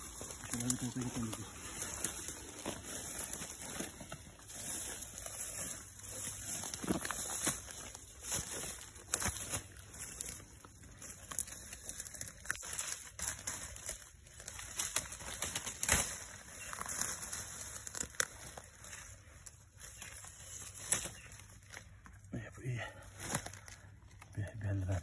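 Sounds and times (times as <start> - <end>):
twigs snapping: 0.0 - 22.3, 23.1 - 24.4
leaves and twigs rustling: 0.0 - 25.0.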